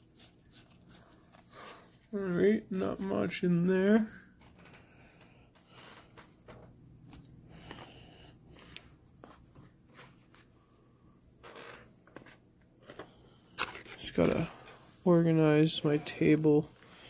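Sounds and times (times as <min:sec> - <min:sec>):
card rustling: 0:12.1 - 0:14.7.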